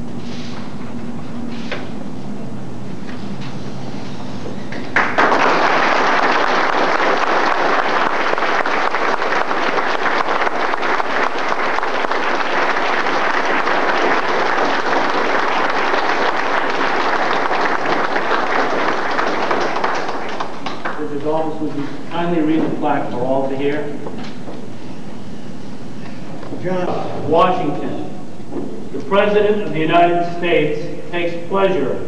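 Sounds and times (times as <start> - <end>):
audience applauding: 4.8 - 21.2.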